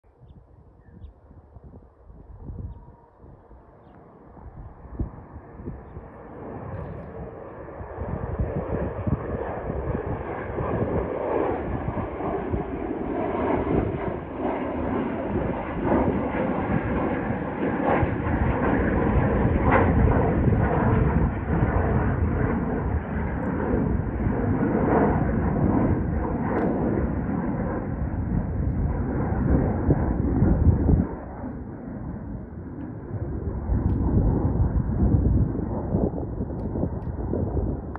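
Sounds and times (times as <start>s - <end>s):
jet engines rumbling: 0.4s - 37.9s.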